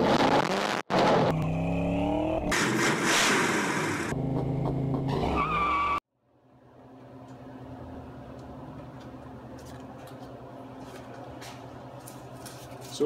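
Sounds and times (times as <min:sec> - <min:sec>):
car engine revving: 0:00.0 - 0:05.5.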